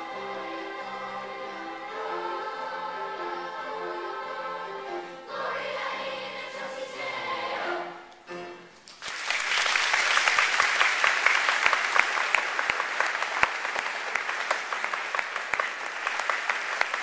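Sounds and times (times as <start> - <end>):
children's choir singing: 0.0 - 8.7
audience applauding: 8.9 - 17.0.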